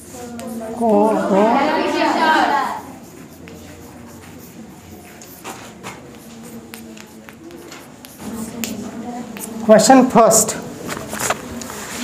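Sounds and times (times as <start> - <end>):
chalk tapping and scratching on blackboard: 0.0 - 1.0, 2.9 - 9.7.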